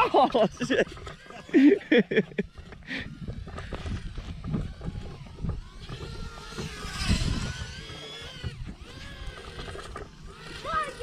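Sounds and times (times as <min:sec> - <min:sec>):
quadcopter motors whining: 0:00.0 - 0:11.0
wind rushing on microphone: 0:03.0 - 0:11.0.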